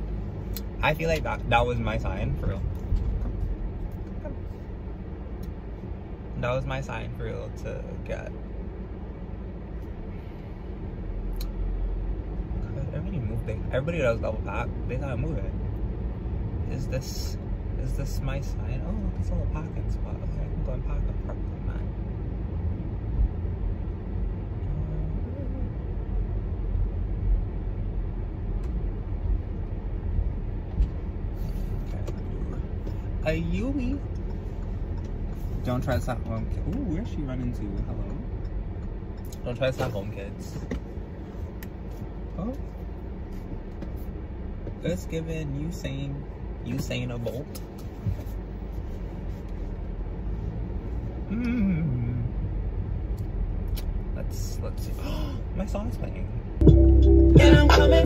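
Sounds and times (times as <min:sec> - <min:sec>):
car engine rumbling: 0:00.0 - 0:58.0
person humming: 0:51.3 - 0:52.3, 0:56.6 - 0:58.0.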